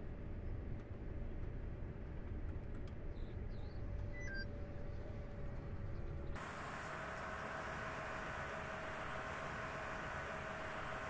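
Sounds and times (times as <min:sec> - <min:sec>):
faint steady whine: 0:00.0 - 0:11.0
combine harvester rumble: 0:04.8 - 0:11.0.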